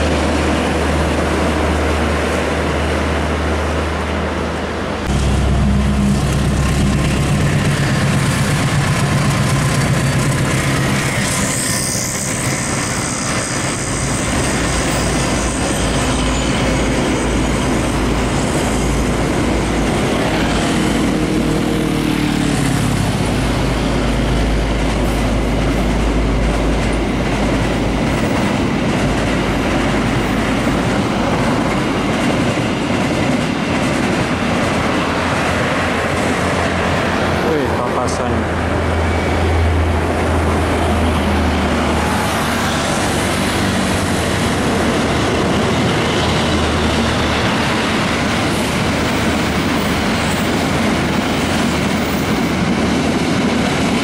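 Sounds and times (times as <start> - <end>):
freight train rolling past: 0.0 - 54.0
truck engine hum: 5.0 - 11.6.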